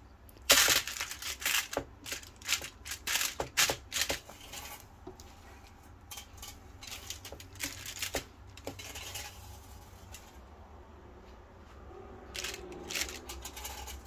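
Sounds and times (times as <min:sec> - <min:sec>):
aluminium foil crinkling: 0:00.4 - 0:04.9, 0:06.1 - 0:10.3, 0:12.3 - 0:14.0.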